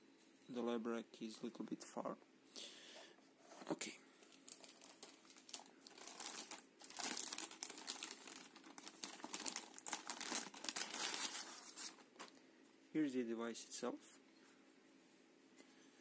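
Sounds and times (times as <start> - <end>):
plastic bag crinkling: 4.2 - 12.4.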